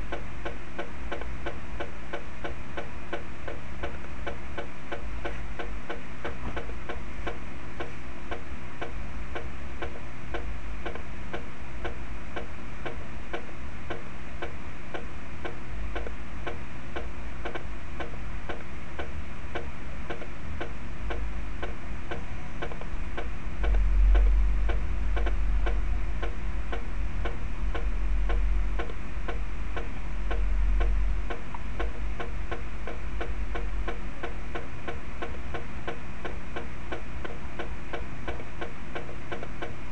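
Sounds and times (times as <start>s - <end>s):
low rumble: 22.9s - 32.5s.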